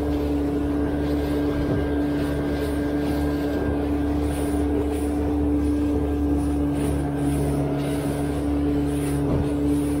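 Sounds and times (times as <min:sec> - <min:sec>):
outboard motor running: 0:00.0 - 0:10.0
water splashing off hull: 0:00.0 - 0:10.0.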